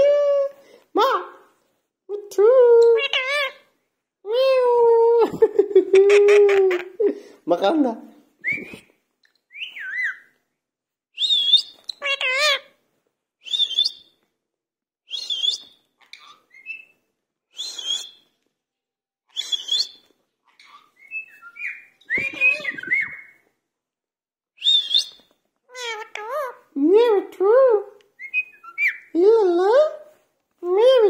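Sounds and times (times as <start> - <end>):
parakeet whistled calls: 9.6 - 10.3, 11.2 - 12.5, 13.5 - 14.1, 15.1 - 16.9, 17.6 - 18.2, 19.3 - 20.0, 20.6 - 23.4, 24.6 - 25.3, 28.2 - 29.1
parakeet warbling calls: 11.3 - 12.7, 20.5 - 23.3, 25.7 - 26.6.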